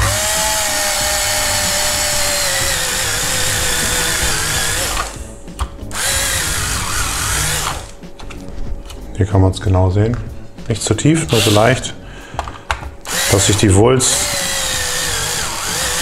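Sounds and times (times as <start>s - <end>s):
cordless drill boring plastic: 0.0s - 5.2s, 6.0s - 8.0s, 11.3s - 11.7s, 13.1s - 16.0s.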